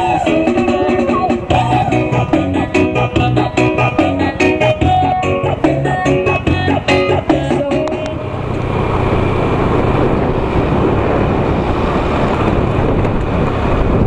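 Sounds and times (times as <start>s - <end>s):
background music: 0.0s - 8.5s
motorcycle engine: 0.0s - 14.0s
wind rush on microphone: 0.0s - 14.0s.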